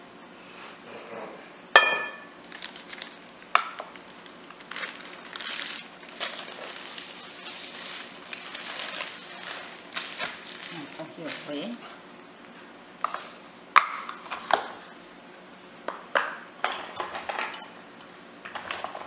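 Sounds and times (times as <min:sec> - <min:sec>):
glass bowl ringing knock: 0:01.8 - 0:02.3
glass clink: 0:01.8 - 0:02.3, 0:16.6 - 0:17.7
plastic bags crinkling: 0:02.5 - 0:03.2, 0:04.2 - 0:11.8.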